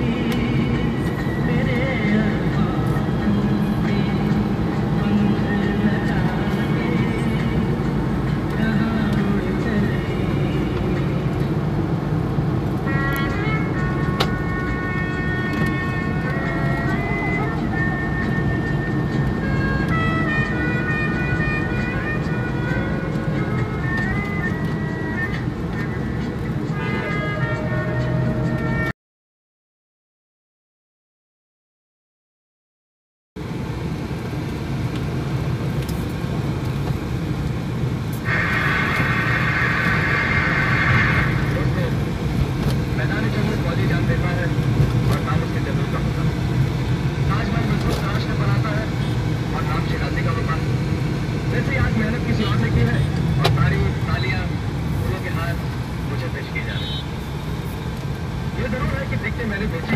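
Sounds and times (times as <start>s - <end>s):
car road and engine rumble: 0.0s - 28.9s, 33.4s - 59.9s
music playing: 12.8s - 28.9s.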